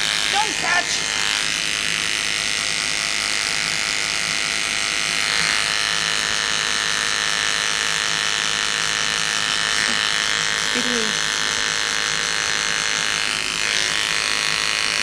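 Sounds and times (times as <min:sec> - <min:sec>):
electric hair clippers buzzing: 0:00.0 - 0:15.0.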